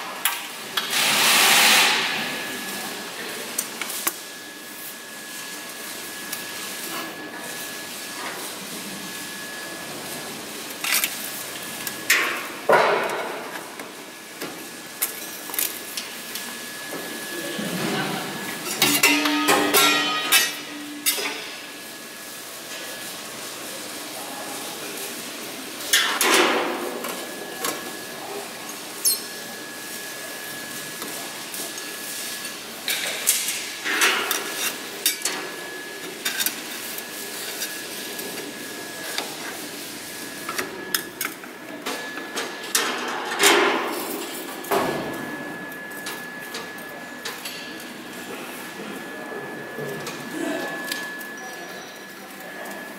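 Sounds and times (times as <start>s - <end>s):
metal tools clanking and rattling: 18.7s - 21.4s.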